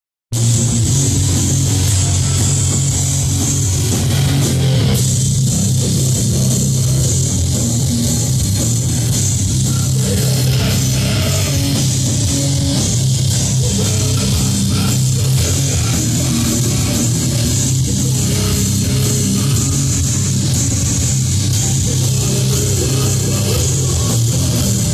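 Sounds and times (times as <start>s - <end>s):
bass guitar low notes: 0.3s - 24.9s
distorted electric guitar: 0.3s - 24.9s
drums and cymbals: 0.3s - 24.9s.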